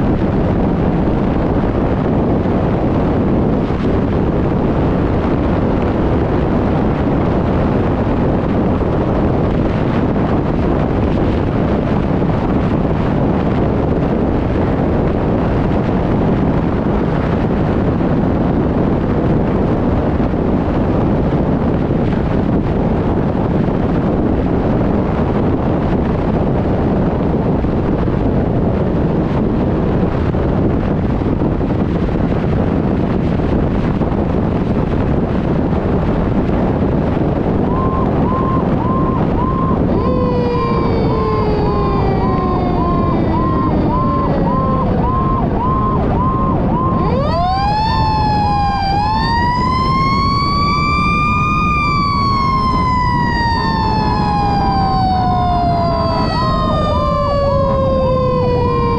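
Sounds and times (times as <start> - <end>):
wind and road noise: 0.0 - 58.9
mechanical siren wail: 36.8 - 58.9
electronic siren pulsing: 37.2 - 58.9.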